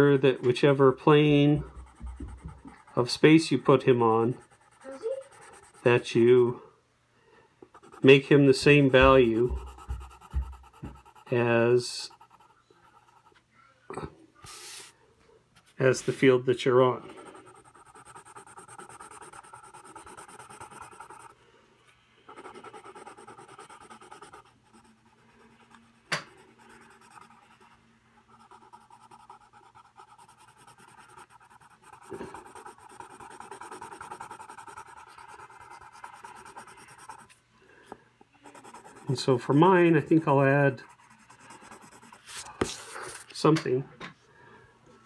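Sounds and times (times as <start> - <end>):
pencil scratching on paper: 0.0 - 6.2, 7.7 - 13.4, 17.0 - 21.4, 22.3 - 37.4, 38.4 - 43.3.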